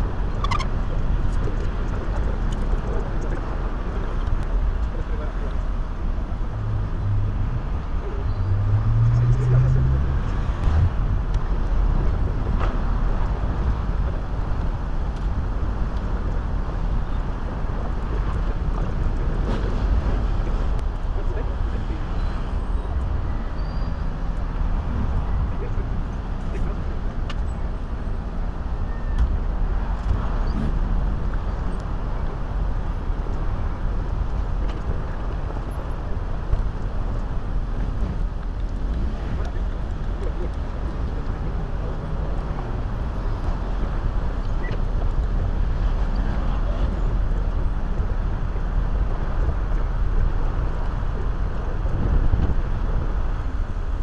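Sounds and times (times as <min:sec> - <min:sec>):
cars passing: 0:00.0 - 0:54.0
city street traffic: 0:00.0 - 0:54.0
wind rumble on microphone: 0:00.0 - 0:54.0.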